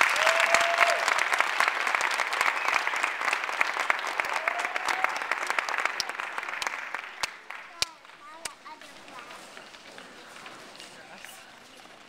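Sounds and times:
audience applause: 0.0s - 12.0s.

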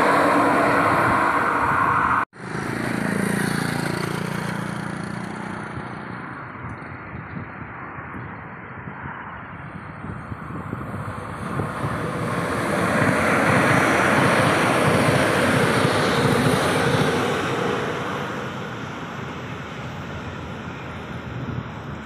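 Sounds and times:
train wheels on rails: 0.0s - 5.6s, 10.6s - 22.0s.

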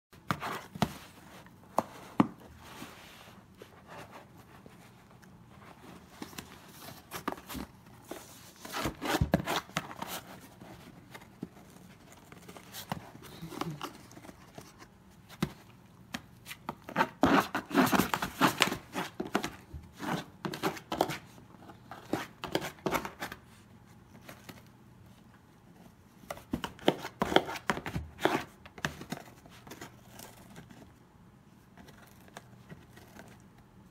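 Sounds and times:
dog claws scratching cardboard: 5.7s - 13.2s, 13.8s - 23.4s, 26.2s - 30.8s.

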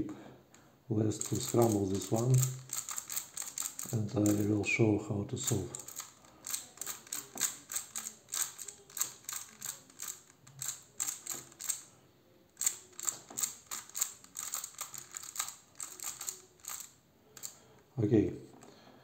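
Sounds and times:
puzzle cube layers clicking: 1.2s - 4.5s, 5.4s - 11.9s, 12.6s - 17.6s.

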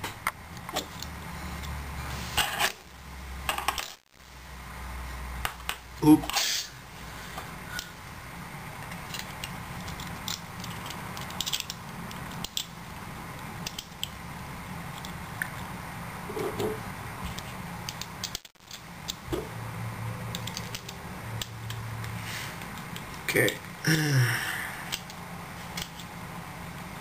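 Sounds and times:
plastic parts clicking and tapping: 8.8s - 13.0s, 16.4s - 19.4s, 20.3s - 21.8s.

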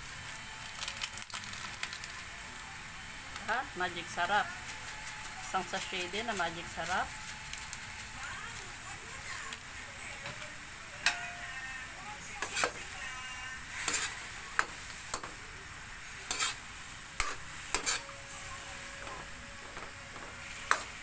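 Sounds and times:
meat sizzling: 0.0s - 21.0s
metal spatula scraping a wok: 12.4s - 15.3s, 16.0s - 21.0s.

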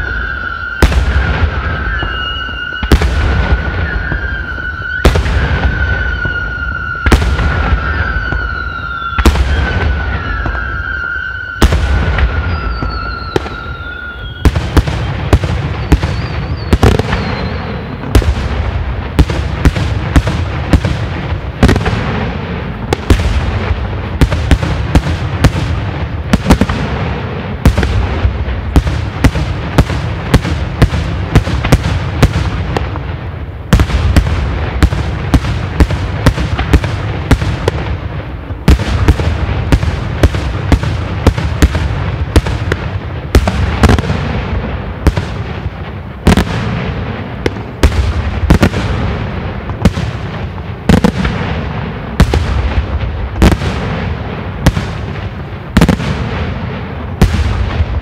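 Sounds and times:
steady high whistle: 0.0s - 18.0s.

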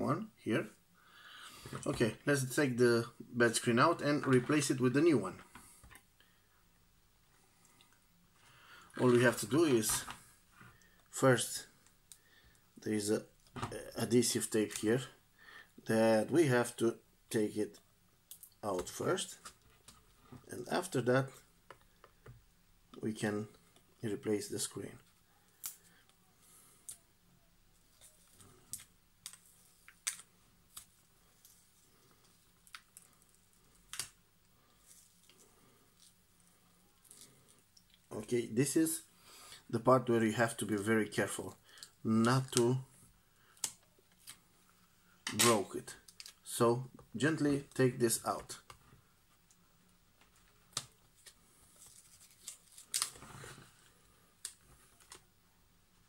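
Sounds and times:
crackling tearing sound: 27.9s - 38.2s, 50.7s - 55.2s.

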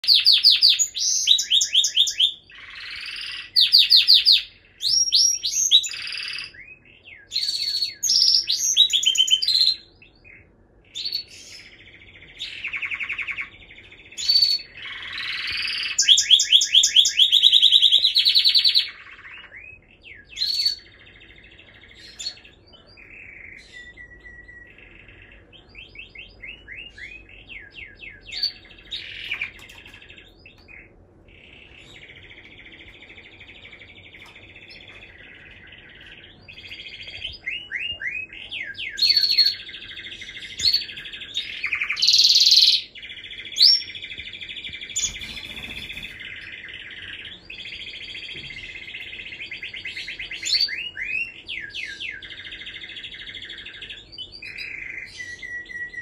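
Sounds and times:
canary singing: 0.0s - 56.0s.

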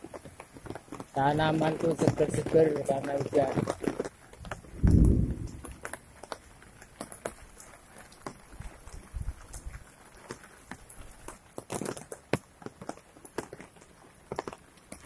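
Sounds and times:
raindrops tapping: 0.0s - 15.0s
low thump: 4.4s - 5.8s.

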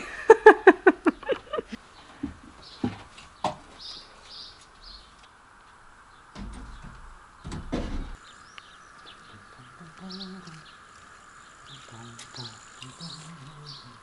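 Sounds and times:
metal cage knocking on wood: 6.4s - 8.2s
faint bird chirps: 8.2s - 14.0s.

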